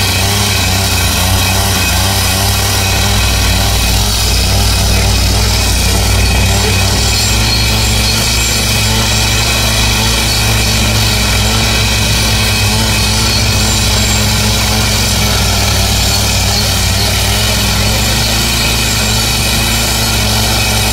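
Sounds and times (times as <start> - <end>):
disc grinding through steel: 0.0 - 20.9
saw engine hum: 0.0 - 20.9.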